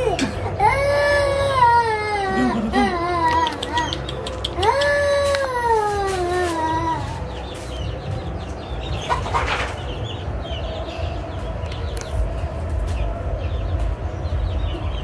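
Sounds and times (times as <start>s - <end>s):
birds chirping: 0.0s - 15.0s
steady low rumble: 6.7s - 15.0s.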